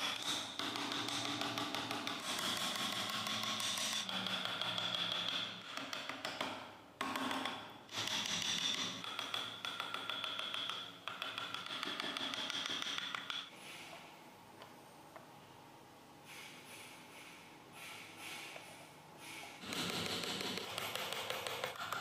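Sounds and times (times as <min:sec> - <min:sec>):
chisel tapping and scraping wood: 0:00.0 - 0:13.5, 0:19.3 - 0:22.0.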